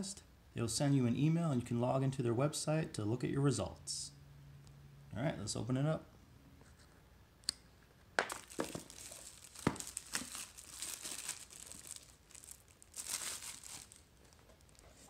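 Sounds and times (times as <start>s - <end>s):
plastic wrap crinkling: 8.2s - 15.0s.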